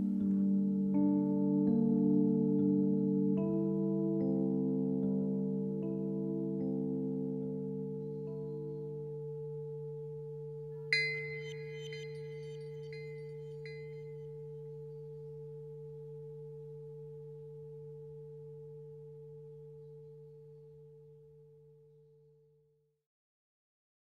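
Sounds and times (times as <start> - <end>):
singing bowl hum: 4.3 - 21.8
bright chime strikes: 10.9 - 14.2.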